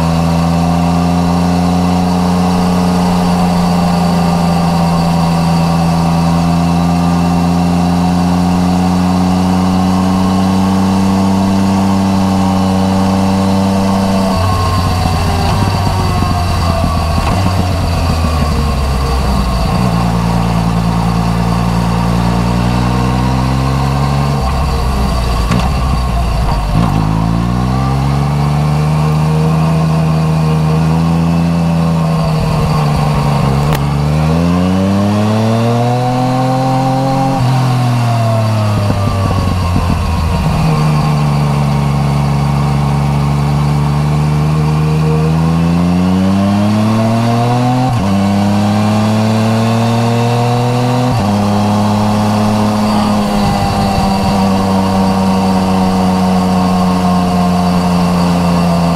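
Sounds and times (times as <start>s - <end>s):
motorcycle engine revving: 0.0s - 58.9s.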